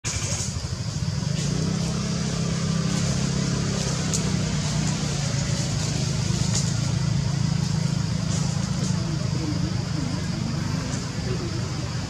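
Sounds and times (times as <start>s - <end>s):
even hiss: 0.1s - 12.0s.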